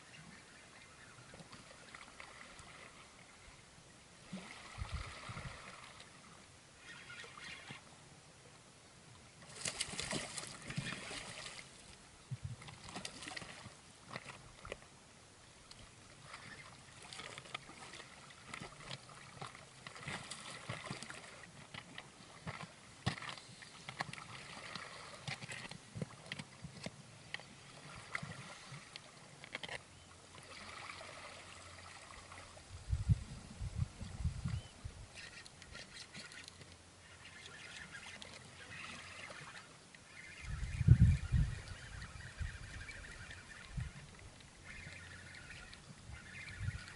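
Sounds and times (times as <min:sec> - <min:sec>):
small sharp clicks and splashes: 0:09.4 - 0:14.9, 0:15.6 - 0:32.6, 0:35.2 - 0:40.4
sea water lapping on rocks: 0:09.5 - 0:14.8.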